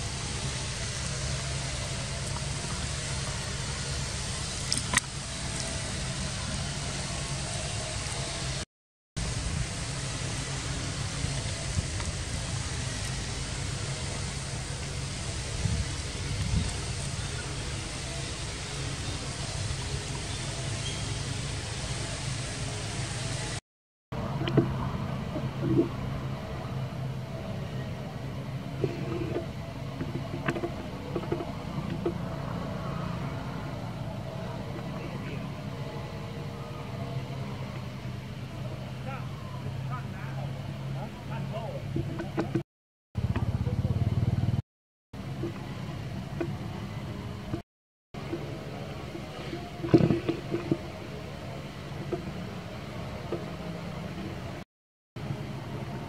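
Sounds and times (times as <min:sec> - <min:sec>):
motor humming: 0:00.0 - 0:08.6, 0:09.2 - 0:23.6
rushing background noise: 0:09.2 - 0:23.6, 0:24.2 - 0:42.6.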